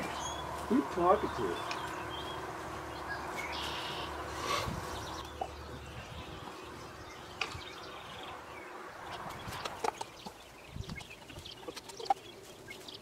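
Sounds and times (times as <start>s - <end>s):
birds calling faintly: 0.0s - 13.0s
steady low hum: 0.0s - 13.0s.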